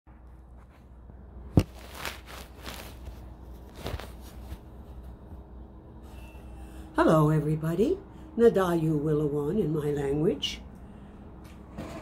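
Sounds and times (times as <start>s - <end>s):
rustling: 0.1s - 5.4s
low steady hum: 0.1s - 12.0s.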